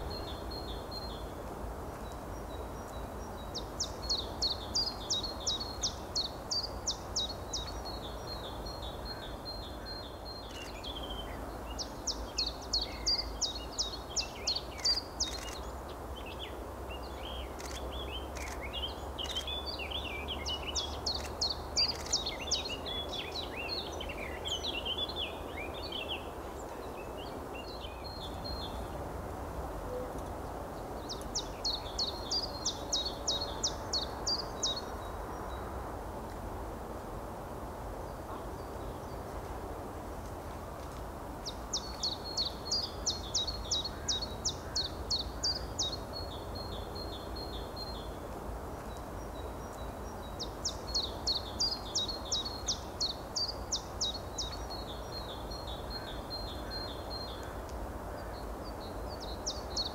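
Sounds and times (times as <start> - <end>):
songbirds singing: 0.0 - 29.0, 30.4 - 35.8, 40.8 - 59.9.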